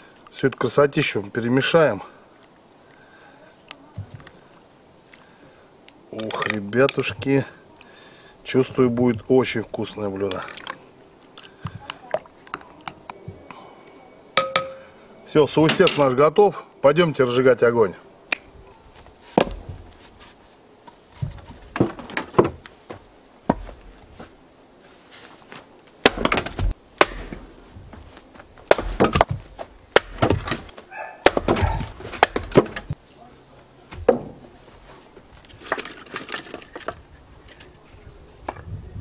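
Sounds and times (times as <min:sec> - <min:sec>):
axe splitting wood: 0:19.3 - 0:19.8, 0:26.0 - 0:27.6, 0:28.6 - 0:33.0, 0:33.9 - 0:34.4
wood pieces clattering down: 0:35.5 - 0:37.7.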